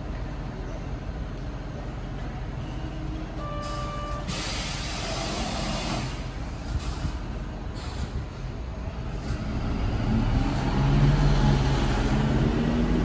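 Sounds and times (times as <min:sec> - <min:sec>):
compressed air hiss: 0:04.3 - 0:06.3.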